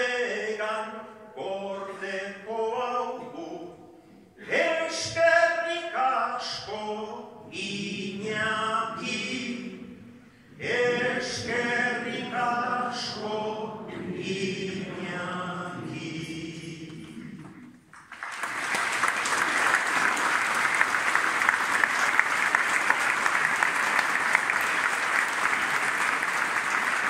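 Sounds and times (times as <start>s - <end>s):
choir singing: 0.0s - 17.5s
crowd applauding: 17.9s - 27.0s.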